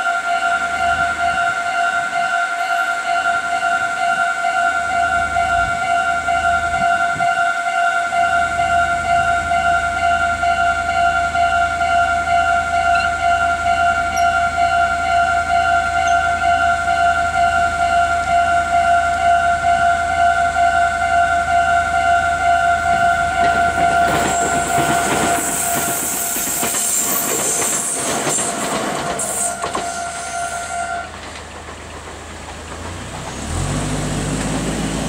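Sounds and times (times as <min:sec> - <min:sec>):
level crossing bell dinging: 0:12.8 - 0:18.0
train wheels clicking and rushing: 0:22.9 - 0:35.0
vehicle engine rising: 0:32.7 - 0:35.0.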